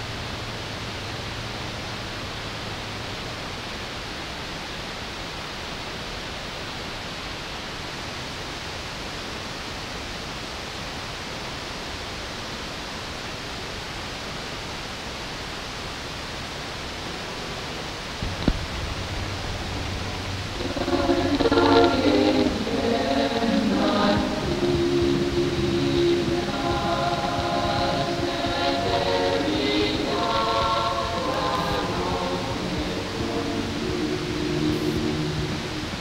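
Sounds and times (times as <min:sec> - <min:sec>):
electronic hiss noise: 0:00.0 - 0:36.0
low hum: 0:16.9 - 0:36.0.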